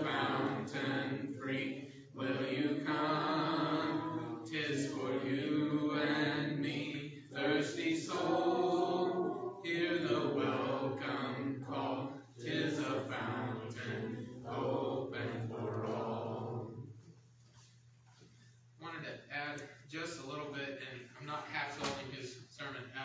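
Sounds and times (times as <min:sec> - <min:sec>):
congregation singing a hymn: 0:00.0 - 0:17.0.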